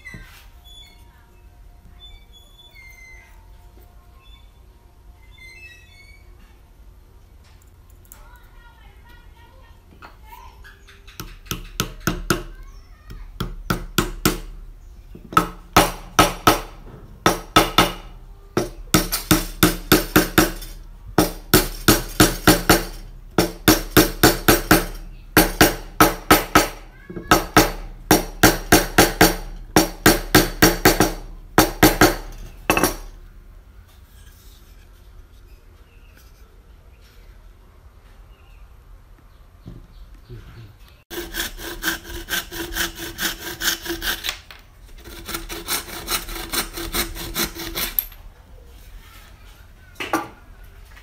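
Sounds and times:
hammer striking wooden wedges: 11.2 - 14.6, 15.2 - 33.2.

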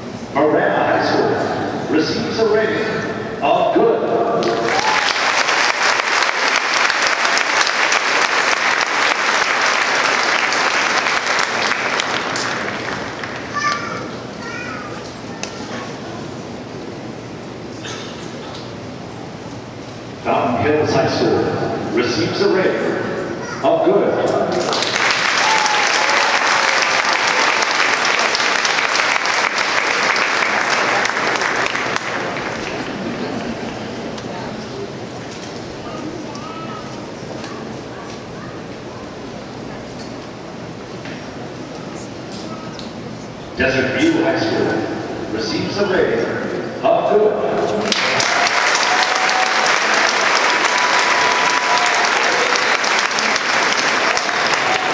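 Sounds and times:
crowd applauding: 4.4 - 14.2, 24.5 - 34.2, 47.8 - 54.9.

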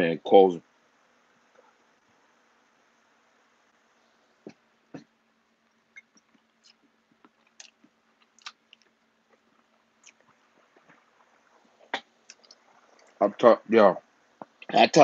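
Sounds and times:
faint steady hum: 0.0 - 15.0
person chewing food: 5.8 - 13.2.

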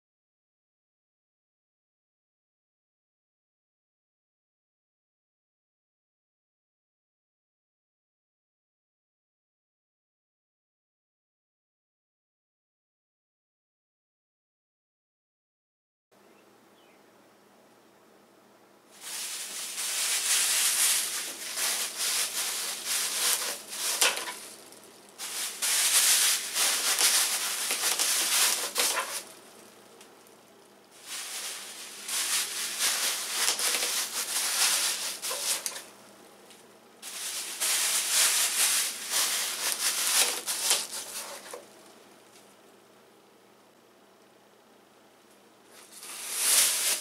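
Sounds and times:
plastic bags crinkling: 19.0 - 29.4, 31.0 - 35.9, 37.0 - 41.6, 45.8 - 47.0.

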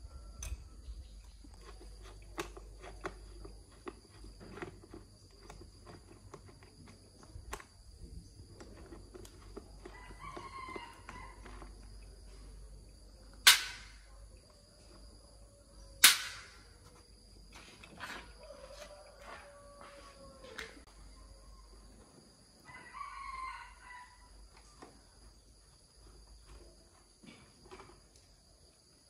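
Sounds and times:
rooster crowing: 0.0 - 0.9, 9.8 - 11.6, 18.2 - 21.8, 22.6 - 24.4.

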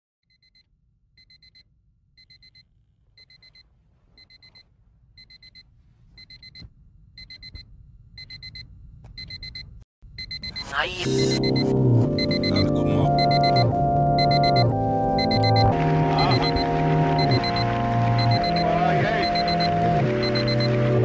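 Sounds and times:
alarm clock beeping: 1.2 - 1.6, 2.2 - 2.6, 4.2 - 4.6, 5.2 - 5.6, 6.2 - 6.6, 7.2 - 7.6, 8.2 - 8.6, 9.2 - 9.6, 10.2 - 20.8.

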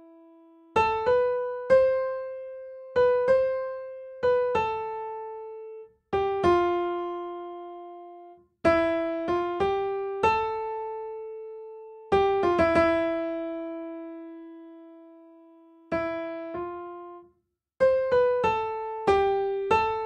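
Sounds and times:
slow piano melody: 0.0 - 20.0.

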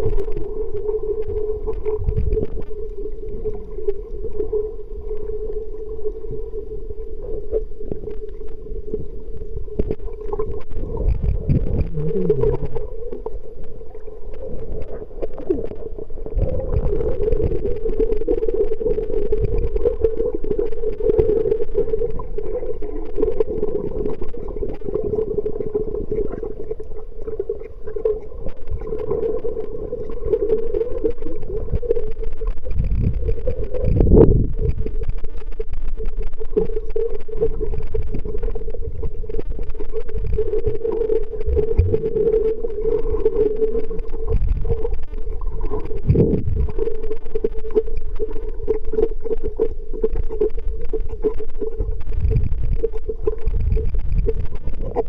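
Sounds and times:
faint clicks and crackles: 0.0 - 55.0
wavering underwater hum: 0.0 - 55.0
low rumbling: 31.6 - 36.2, 37.6 - 42.8, 43.9 - 47.1.

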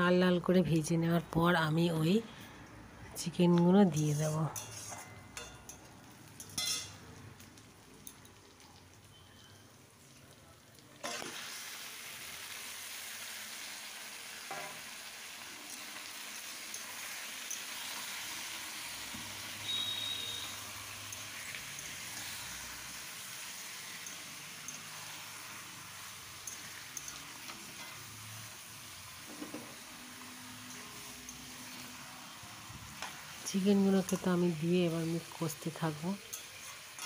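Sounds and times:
onions frying quietly: 0.0 - 37.0
metal spatula stirring: 3.8 - 7.0, 11.0 - 11.4, 23.8 - 28.3, 30.5 - 32.0, 36.2 - 37.0
spatula clatter: 3.9 - 7.0, 11.0 - 11.4, 23.8 - 28.2, 36.2 - 37.0
chicken sizzling in oil: 3.9 - 37.0.

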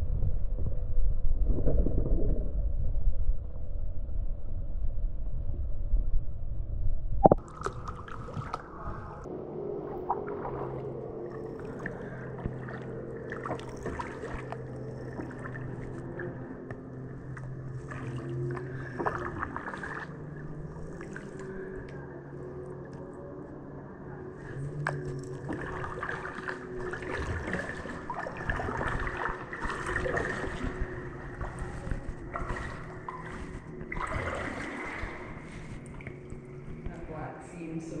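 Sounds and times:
faint steady hum: 0.0 - 38.0
kayak paddle dripping water: 7.2 - 9.0, 9.9 - 22.0, 24.4 - 37.0
small water splashes and gurgles: 7.2 - 23.3, 24.2 - 37.2.

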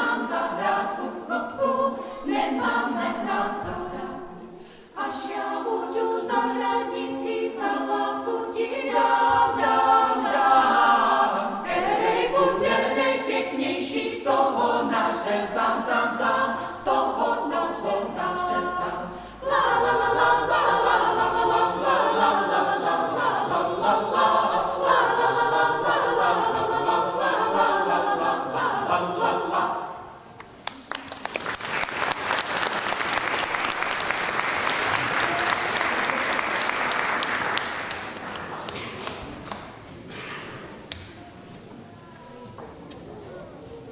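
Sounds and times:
choir singing unaccompanied: 0.0 - 30.3
audience applause: 30.6 - 39.5.

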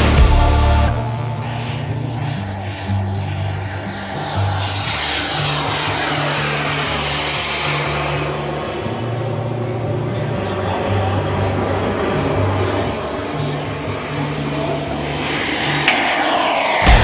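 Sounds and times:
model jet turbine whine: 0.0 - 17.0.

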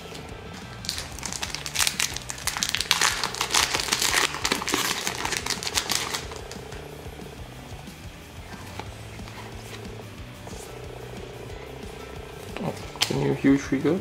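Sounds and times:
foil wrapper crinkling and tearing: 0.6 - 6.6.

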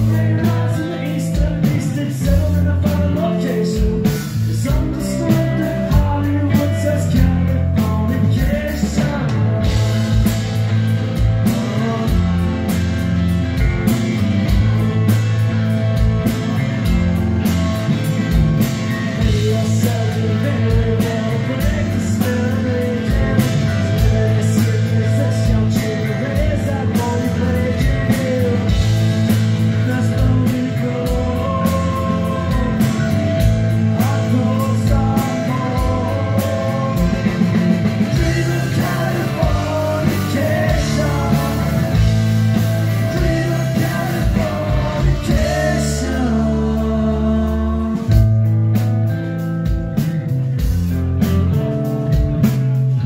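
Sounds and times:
man singing: 0.0 - 10.2, 11.4 - 13.0, 19.1 - 48.5
live rock band playing: 0.0 - 53.0
drum hits: 27.8 - 46.1.

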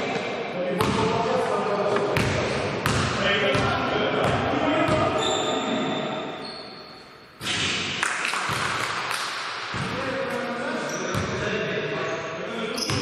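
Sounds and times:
indoor hall noise: 0.0 - 13.0
basketball shoe squeaks: 5.1 - 7.6, 10.8 - 11.4, 12.7 - 13.0.

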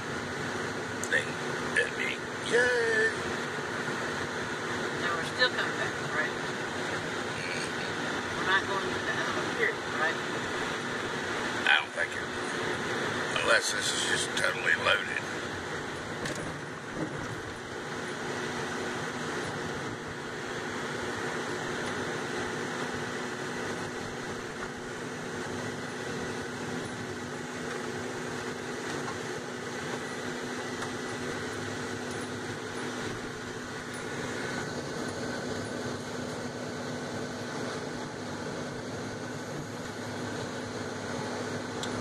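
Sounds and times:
car engine hum: 0.0 - 42.0.

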